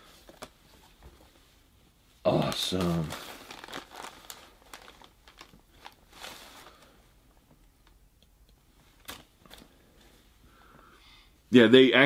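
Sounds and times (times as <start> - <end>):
fabric rustling: 0.0 - 8.0.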